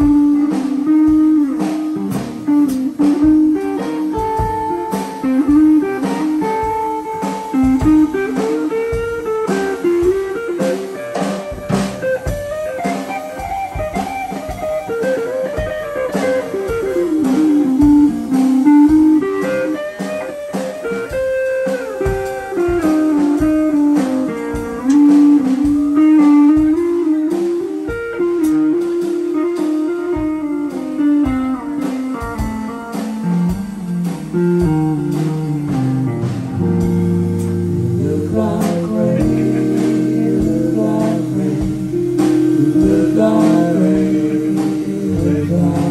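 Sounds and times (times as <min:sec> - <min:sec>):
drum kit: 0:00.0 - 0:45.9
electric guitar solo: 0:00.0 - 0:45.9.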